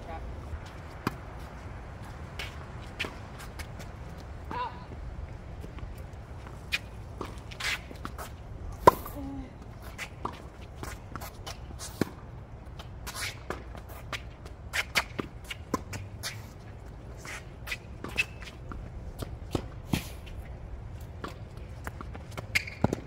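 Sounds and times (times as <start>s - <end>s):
footsteps on court: 0.5s - 12.2s
sneakers scuffing on court: 5.6s - 9.2s, 9.8s - 12.2s
rackets hitting tennis ball: 21.1s - 23.0s.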